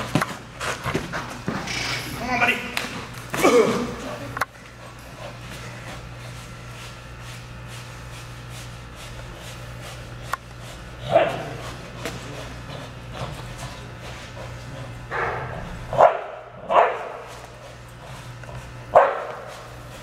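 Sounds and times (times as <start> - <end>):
steady low hum: 0.0 - 20.0
dog tugging bite sleeve: 4.8 - 14.9
dog barking: 11.0 - 11.6, 15.1 - 17.3, 18.9 - 19.5.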